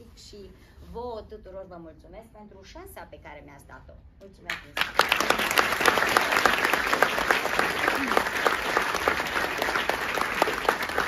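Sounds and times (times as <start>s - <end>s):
audience applause: 4.8s - 11.0s.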